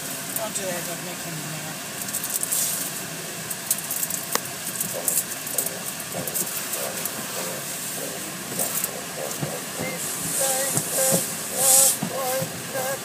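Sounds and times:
water spraying on windshield: 4.7 - 13.0.

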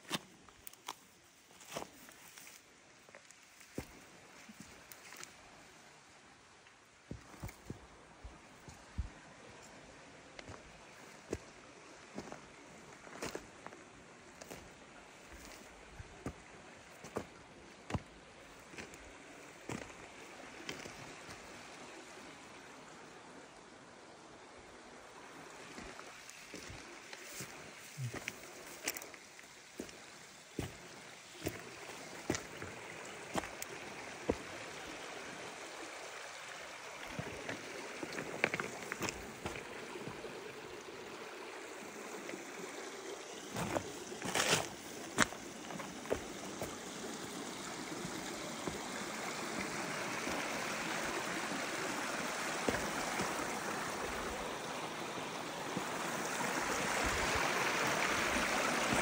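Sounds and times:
footsteps on stones: 0.0 - 4.0, 7.1 - 9.8, 25.8 - 34.5, 37.0 - 40.2, 43.5 - 46.8, 52.6 - 53.5
mountain stream over rocks: 0.0 - 59.0.

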